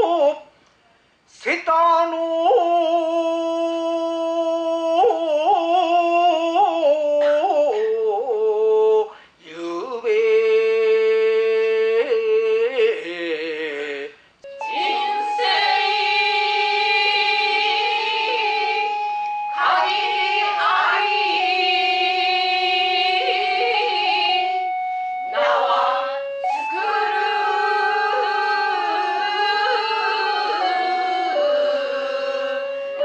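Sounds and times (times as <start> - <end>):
man chanting: 1.4 - 14.2
steady held tone: 13.7 - 33.0.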